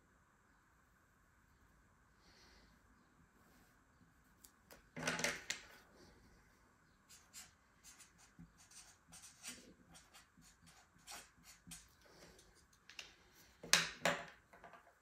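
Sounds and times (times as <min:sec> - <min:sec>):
pencil scratching on paper: 0:07.1 - 0:12.5.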